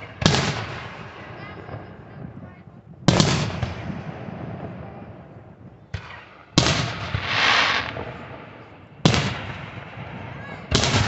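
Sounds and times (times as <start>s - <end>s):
fireworks bursting: 6.6s - 9.9s
loud bang: 7.0s - 8.7s.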